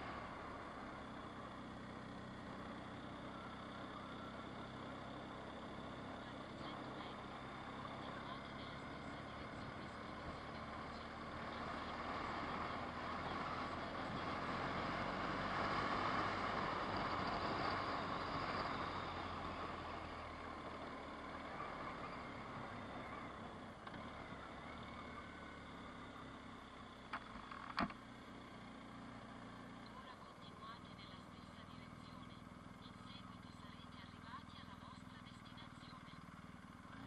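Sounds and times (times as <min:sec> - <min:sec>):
car engine and tyre noise: 0:00.0 - 0:37.0.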